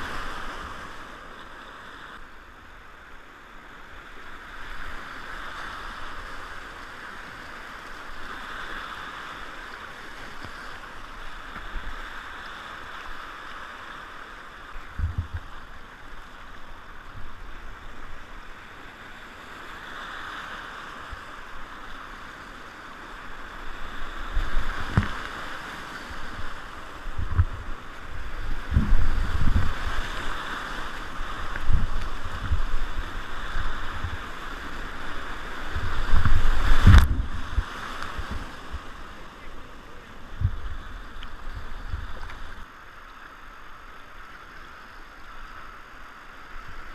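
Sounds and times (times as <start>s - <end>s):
whitewater rapids rushing: 4.4s - 46.9s
boat thumps and splashes: 14.9s - 15.5s, 24.6s - 25.3s.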